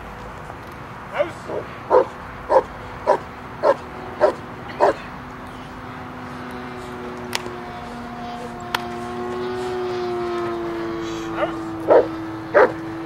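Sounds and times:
steady hum: 0:00.0 - 0:13.0
dog barking: 0:01.2 - 0:05.0, 0:11.4 - 0:12.8
sharp cracks: 0:07.2 - 0:07.6, 0:08.6 - 0:09.1.

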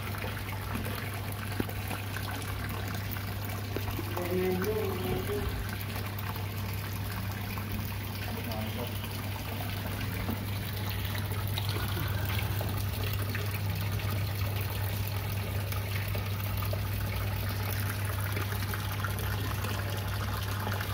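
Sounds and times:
water splashing into pond: 0:00.0 - 0:20.9.

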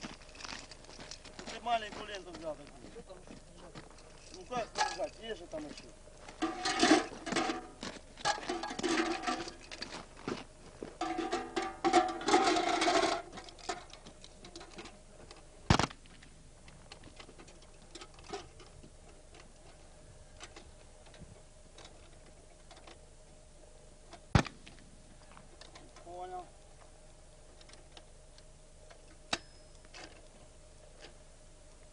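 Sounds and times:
equipment clicking and rattling: 0:00.0 - 0:02.6.

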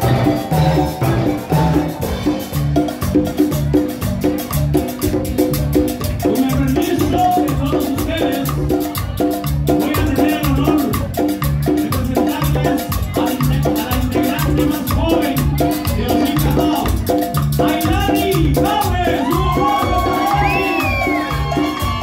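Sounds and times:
bass pulse: 0:00.0 - 0:09.8
drum kit dance beat: 0:00.0 - 0:22.0
marimba melody: 0:00.0 - 0:22.0.

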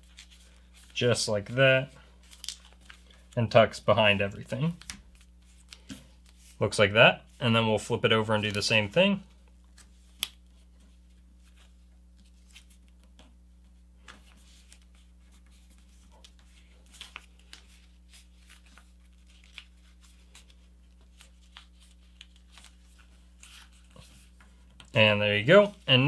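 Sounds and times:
paper rustling and crackling: 0:02.2 - 0:03.4, 0:14.0 - 0:26.0.

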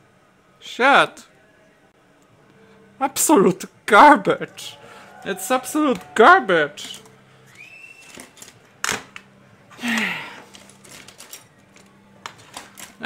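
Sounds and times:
person sighing: 0:09.7 - 0:10.5
plastic handling noise: 0:09.9 - 0:13.0.

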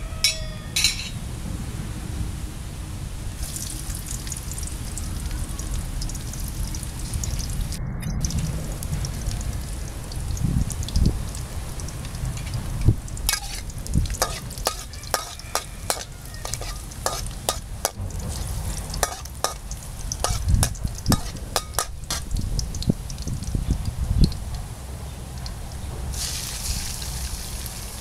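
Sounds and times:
oil sizzling: 0:03.4 - 0:28.0
metal spatula scraping a wok: 0:13.3 - 0:22.3.

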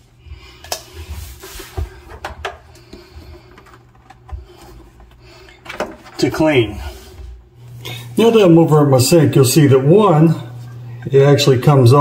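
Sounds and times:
low steady hum: 0:00.0 - 0:12.0
plastic parts handled: 0:03.2 - 0:06.2.

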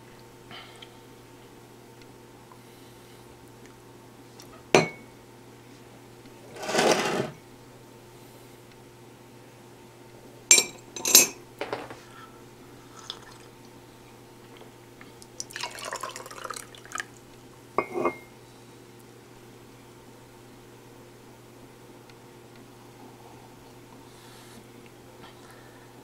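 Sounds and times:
porcelain mug clinking: 0:04.8 - 0:05.1, 0:17.8 - 0:18.3.

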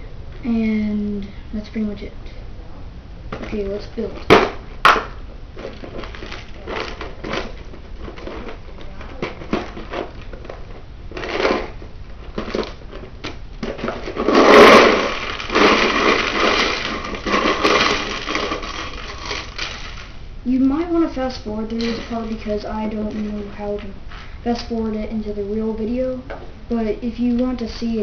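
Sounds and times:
plastic canister handling rustles: 0:05.6 - 0:20.2
plastic pieces clattering onto glass: 0:13.7 - 0:20.1, 0:21.8 - 0:22.4.

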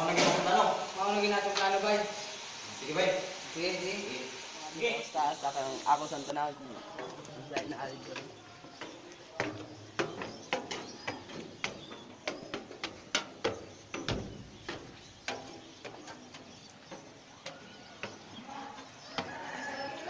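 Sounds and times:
sharp clicks and knocks: 0:07.0 - 0:18.3.

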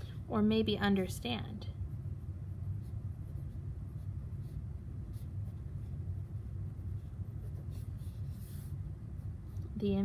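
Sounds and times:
steady low hum: 0:00.0 - 0:10.0
pen scratching on paper: 0:01.9 - 0:09.7.

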